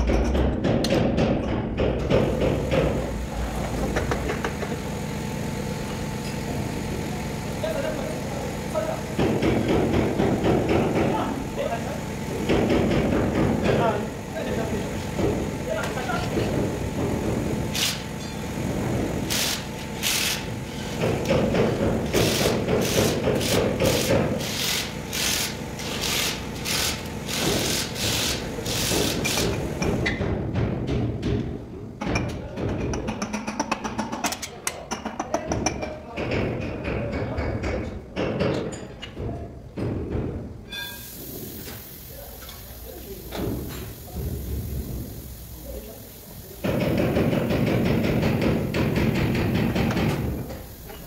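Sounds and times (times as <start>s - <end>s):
steady machine hum: 1.5s - 30.9s.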